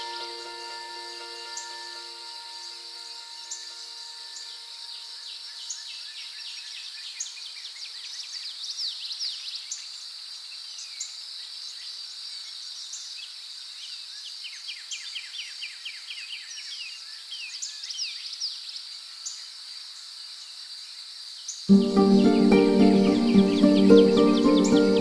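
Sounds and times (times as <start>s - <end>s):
background music held notes: 0.0s - 5.2s, 21.7s - 25.0s
high-pitched insect chorus: 0.0s - 25.0s
bird calling down-slurred notes: 21.7s - 25.0s.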